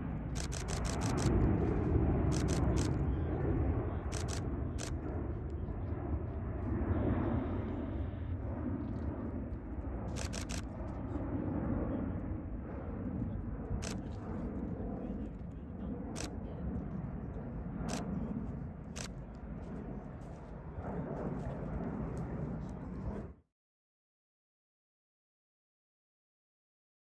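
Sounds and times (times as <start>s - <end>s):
jet engines rumbling overhead: 0.0s - 23.4s
sharp clicks: 0.4s - 1.3s, 2.3s - 3.0s, 4.1s - 5.0s, 10.1s - 10.7s.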